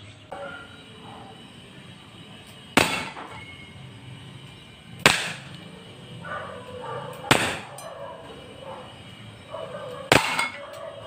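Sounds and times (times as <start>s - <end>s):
airsoft revolver shots: 5.0s - 5.5s, 7.3s - 7.8s.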